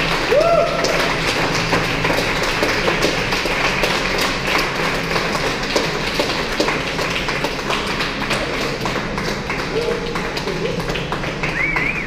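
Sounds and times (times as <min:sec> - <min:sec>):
exercise bikes whirring: 0:00.0 - 0:12.0
scattered claps and taps: 0:00.0 - 0:12.0.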